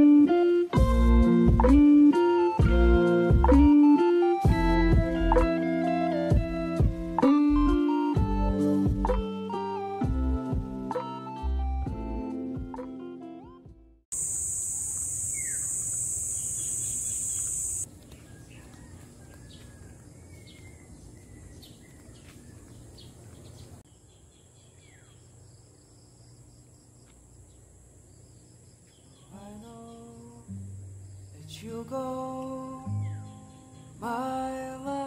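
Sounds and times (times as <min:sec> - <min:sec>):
high insect buzz: 0:14.1 - 0:17.9
birds chirping: 0:14.2 - 0:31.9, 0:32.7 - 0:34.6.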